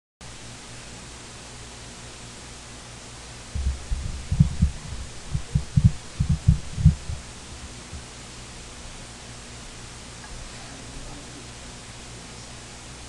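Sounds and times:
electrical hum and hiss: 0.2 - 13.0
dull thumps on microphone: 3.6 - 7.2.

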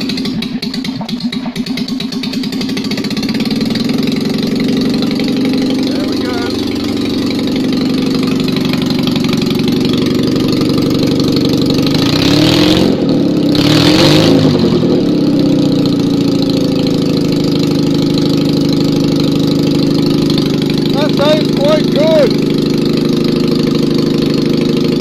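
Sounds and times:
loud car engine running: 0.0 - 25.0.

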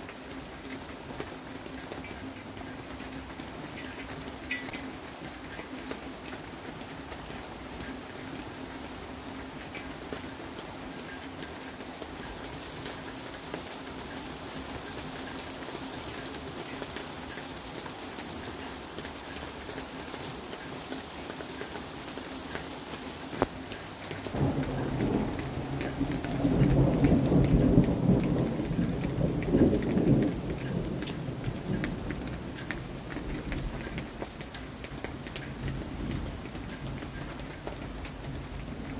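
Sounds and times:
steady rain: 0.0 - 38.9
thunder rolling: 24.3 - 32.1.

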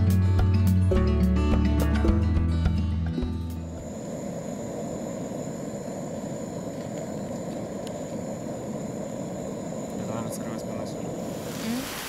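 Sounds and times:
gas stove burner roaring: 3.5 - 12.0.

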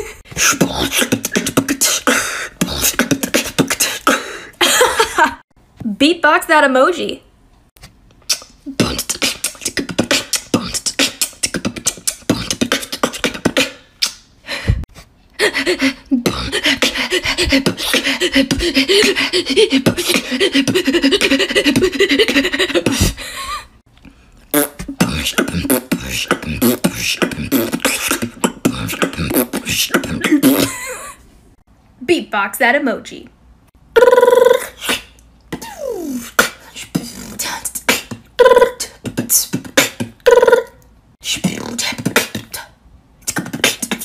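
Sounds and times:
woman beatboxing: 0.3 - 4.3, 8.3 - 14.2, 15.4 - 23.3, 24.6 - 30.9, 34.0 - 44.0.

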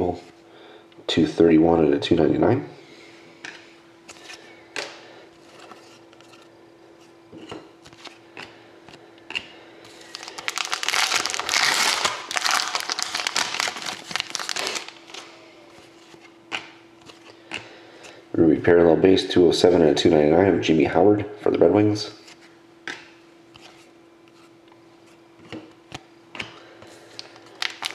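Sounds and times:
faint steady hum: 0.0 - 27.9
plastic wrapping crinkling: 10.0 - 15.4, 27.1 - 27.9.

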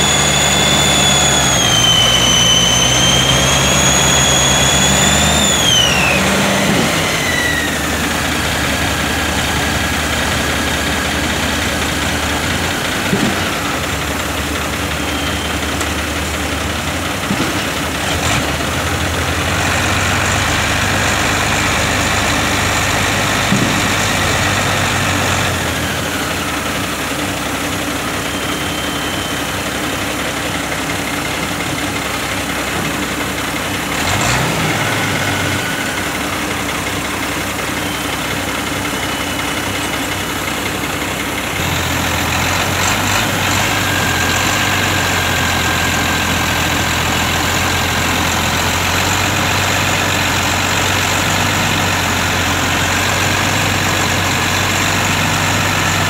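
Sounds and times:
power pack engine running: 0.0 - 22.1.

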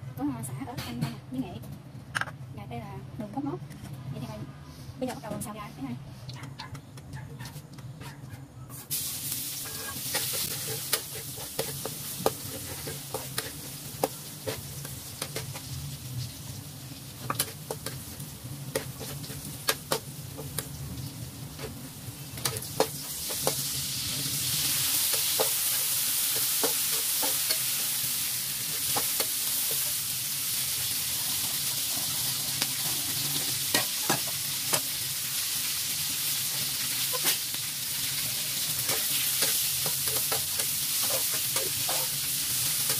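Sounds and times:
spatula scraping metal wok: 8.8 - 15.7, 17.2 - 20.6, 38.5 - 42.9
food sizzling in hot oil: 8.8 - 42.9.

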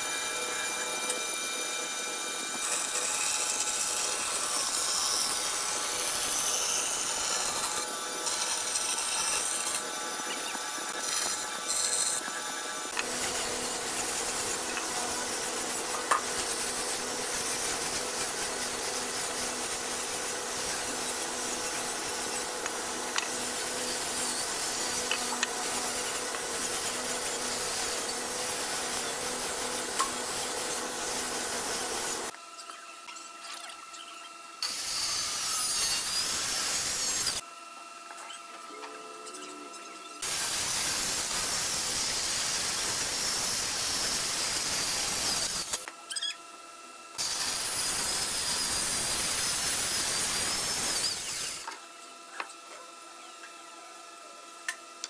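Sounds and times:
band saw cutting wood: 0.0 - 32.3, 34.6 - 37.4, 40.2 - 45.9, 47.2 - 51.8
power tool sanding wood: 0.0 - 32.3, 34.6 - 37.4, 40.2 - 45.9, 47.2 - 51.7
motor hum: 0.0 - 42.1.

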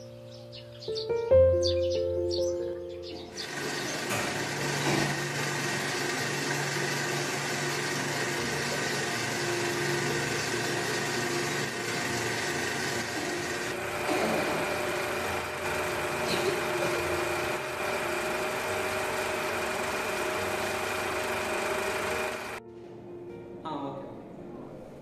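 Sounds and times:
lathes humming: 3.3 - 22.6.

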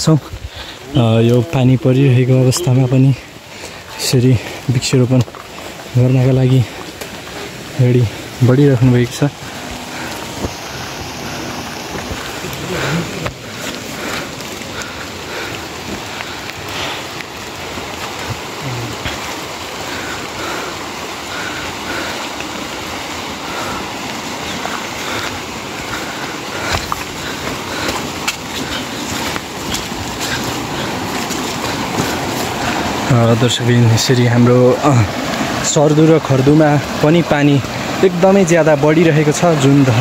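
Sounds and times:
heavy rain falling: 0.0 - 40.0
raindrops tapping nearby: 0.0 - 40.0.

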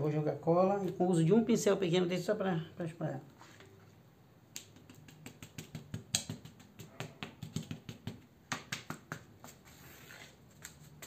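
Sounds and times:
glue brush tapping on cardboard: 4.6 - 9.6
soft scratchy brushing: 9.4 - 11.0.

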